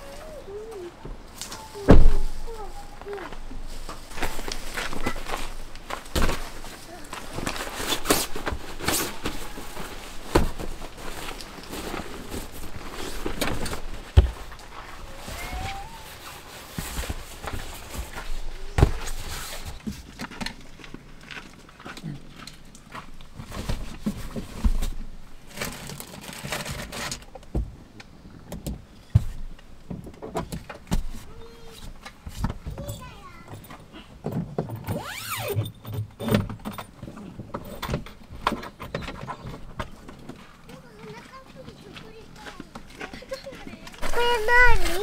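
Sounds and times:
sleeping mat and bag rustling: 0:00.0 - 0:22.6, 0:34.8 - 0:35.6, 0:36.9 - 0:45.0
loud thump: 0:01.9 - 0:02.4.

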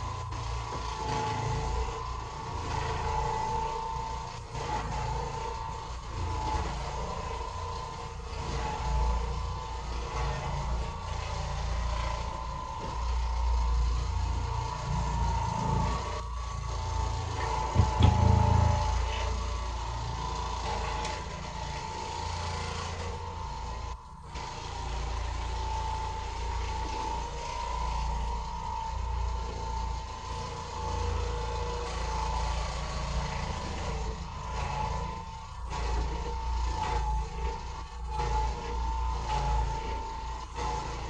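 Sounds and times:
floor machine motor hum: 0:00.0 - 0:41.0
heavy low thump: 0:17.8 - 0:18.8.

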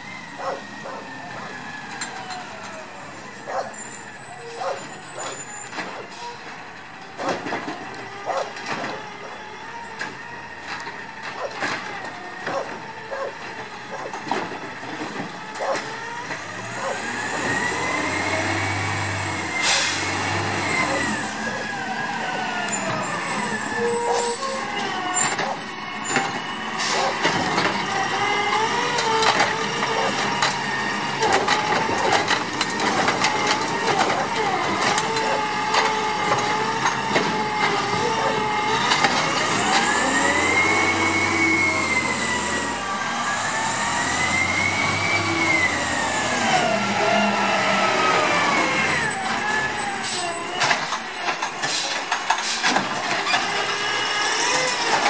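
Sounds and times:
garbage truck engine: 0:00.0 - 0:55.0.

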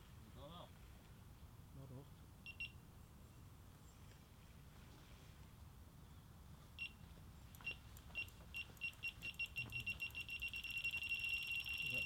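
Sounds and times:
bite alarm beeping: 0:07.6 - 0:12.0.

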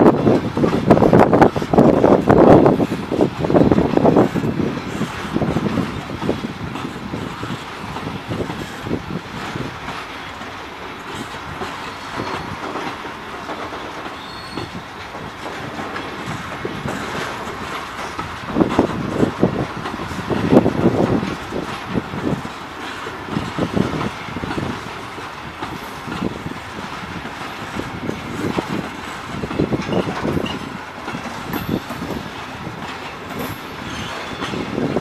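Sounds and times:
train wheels clattering over joints: 0:00.0 - 0:35.0
high wheel squeals: 0:11.8 - 0:12.6, 0:13.8 - 0:14.9, 0:33.3 - 0:35.0.

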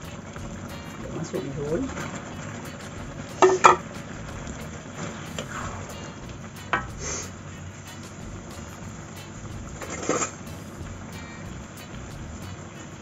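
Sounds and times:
low sizzle: 0:00.0 - 0:13.0
spatula knocking against wok: 0:06.6 - 0:07.0.

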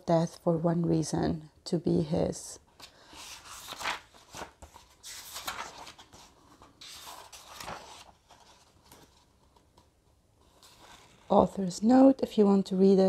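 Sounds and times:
book pages rustling: 0:02.7 - 0:11.4.

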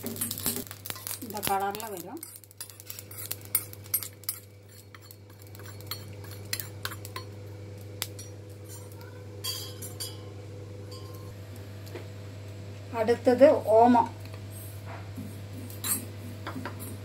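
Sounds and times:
metal spoon scraping a pan: 0:00.0 - 0:07.4, 0:15.8 - 0:17.0
seeds clinking on steel plate: 0:00.0 - 0:07.4, 0:15.8 - 0:16.1
steady low hum: 0:00.0 - 0:17.0.

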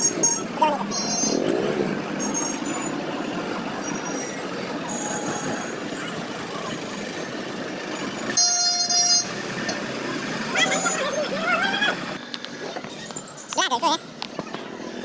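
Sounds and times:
motorcycle and truck engines: 0:00.0 - 0:15.0
vehicle horn honking: 0:08.3 - 0:09.3.

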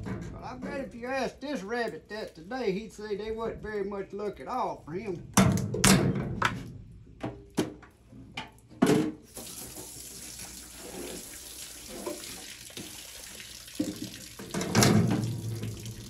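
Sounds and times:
tap water into steel sink: 0:11.9 - 0:16.0.

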